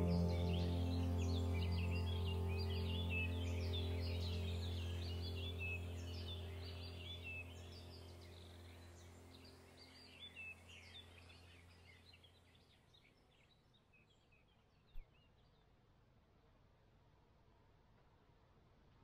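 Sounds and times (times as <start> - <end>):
background music drone: 0.0 - 12.2
faint birdsong chirps: 0.0 - 16.0.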